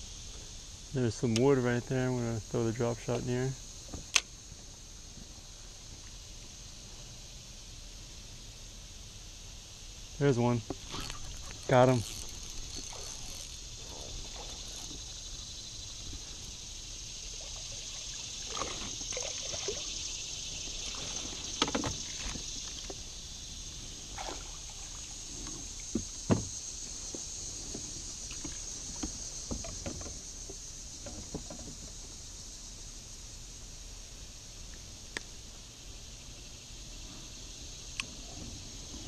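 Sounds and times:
insects chirring: 0:00.0 - 0:39.0
fish splashing: 0:10.8 - 0:16.5, 0:17.2 - 0:22.9, 0:24.0 - 0:25.8.

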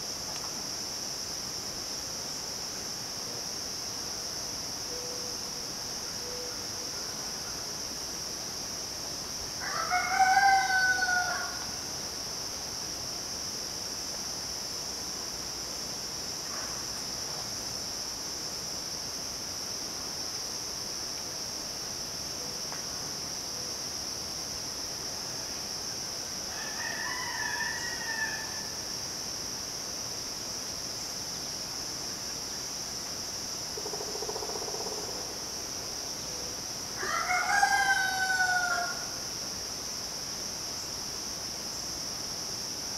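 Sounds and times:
insects droning: 0:00.0 - 0:42.9
rooster crowing: 0:09.6 - 0:11.7, 0:26.5 - 0:28.8, 0:37.0 - 0:39.2.

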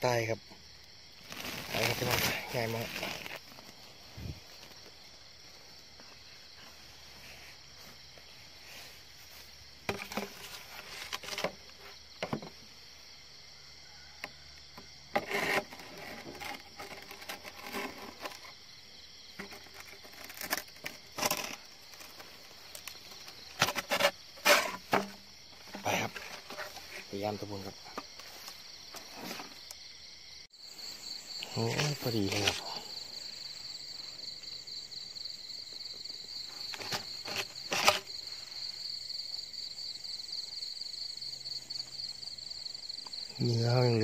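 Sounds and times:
night insects chorus: 0:00.0 - 0:44.0
plastic trap knocks and scrapes: 0:09.9 - 0:12.6, 0:19.3 - 0:22.2, 0:23.1 - 0:27.0, 0:36.7 - 0:38.1.

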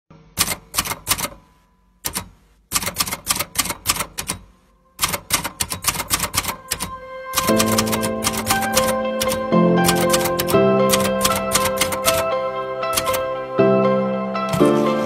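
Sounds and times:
typewriter keys clacking: 0:00.4 - 0:01.4, 0:02.0 - 0:12.3, 0:12.9 - 0:13.3
music: 0:06.1 - 0:15.0.

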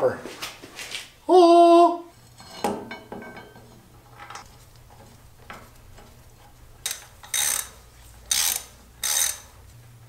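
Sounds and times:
ratchet wrench clicking: 0:06.8 - 0:09.6.

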